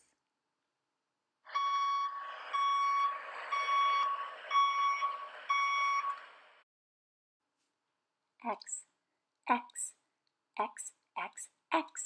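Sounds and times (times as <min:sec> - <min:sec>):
reversing alarm beeping: 0:01.5 - 0:06.2.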